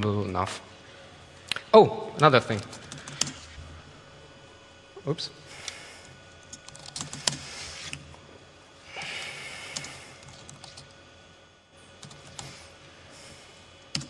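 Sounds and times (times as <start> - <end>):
laptop keyboard typing: 2.5 - 3.5, 6.4 - 7.5, 9.0 - 10.9, 12.0 - 12.7.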